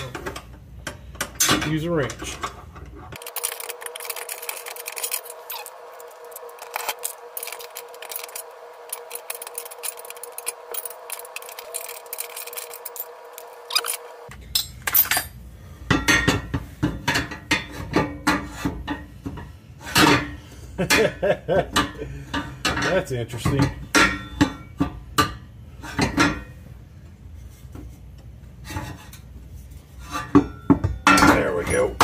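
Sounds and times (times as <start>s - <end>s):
metallic clinks and clanks: 0.0s - 15.4s
steady hum: 0.0s - 32.0s.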